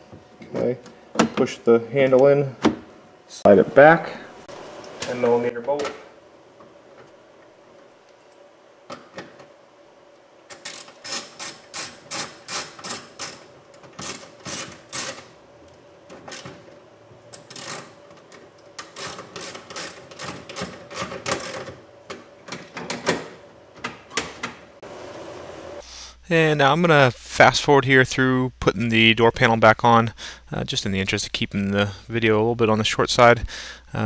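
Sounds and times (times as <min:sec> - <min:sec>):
hand ratchet clicking: 0:10.5 - 0:15.2, 0:17.3 - 0:18.0, 0:18.8 - 0:21.7.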